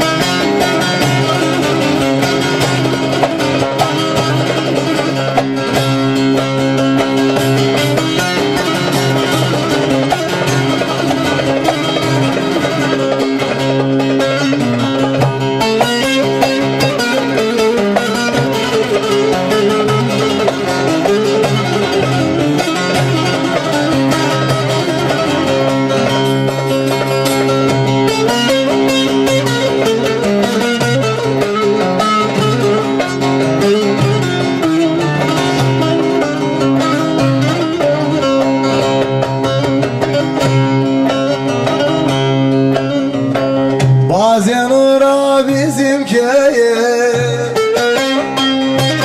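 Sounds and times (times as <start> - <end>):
plucked long-necked lute: 0.0 - 49.0
man singing: 44.1 - 48.0.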